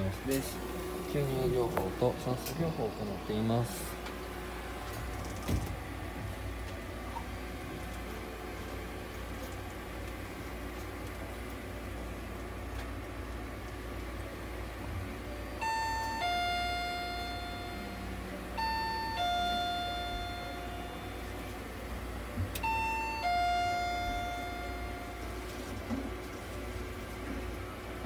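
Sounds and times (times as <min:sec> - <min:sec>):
steady low hum: 0:00.0 - 0:28.0
electronic ding-dong chime: 0:15.6 - 0:21.5, 0:22.6 - 0:25.5.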